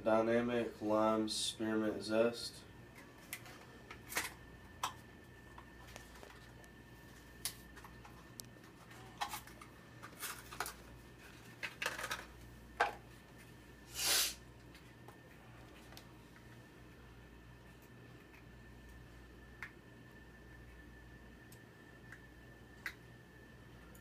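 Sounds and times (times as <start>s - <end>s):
packaging crinkle: 7.4s - 12.3s
cardboard and plastic rustles: 7.7s - 12.3s.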